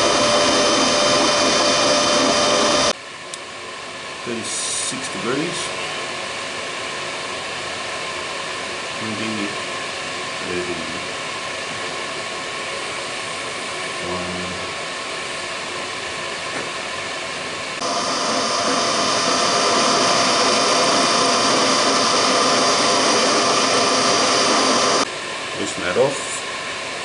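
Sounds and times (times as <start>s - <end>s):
machine hum: 0.0s - 3.0s, 17.7s - 25.4s
milling motor whine: 0.0s - 3.0s, 17.0s - 25.1s.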